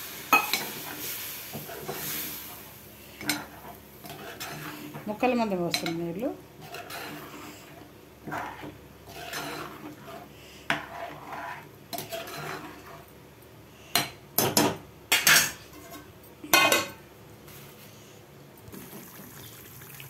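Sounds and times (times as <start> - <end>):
spoon stirring in metal pot: 3.2 - 13.1.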